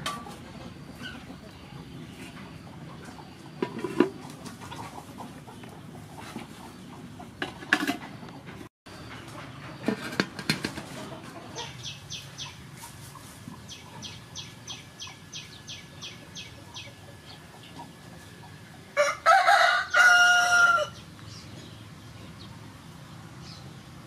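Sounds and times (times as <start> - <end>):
metal pot clanking and knocking: 3.6 - 4.1.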